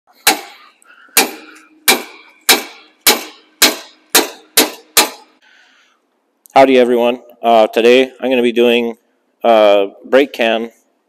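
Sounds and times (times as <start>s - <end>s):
hammer striking steel wrench: 1.2s - 5.4s.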